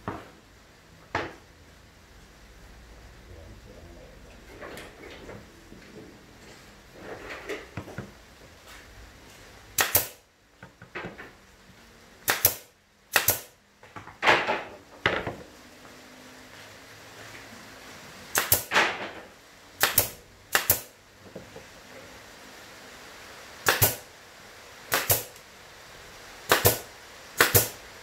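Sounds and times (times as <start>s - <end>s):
wooden panels knocking and scraping: 1.1s - 1.4s, 10.6s - 11.4s, 13.8s - 15.5s
nail gun shots with air puffs: 9.8s - 10.2s, 12.2s - 13.6s, 18.3s - 19.0s, 19.8s - 21.0s, 23.6s - 24.1s, 24.9s - 25.4s, 26.4s - 27.8s.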